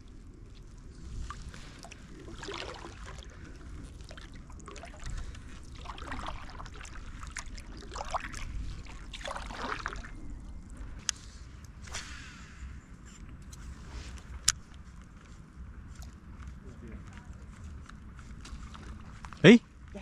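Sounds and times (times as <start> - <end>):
water swishing and splashing: 0.0 - 13.0, 18.2 - 19.6
low steady rumble: 0.0 - 20.0.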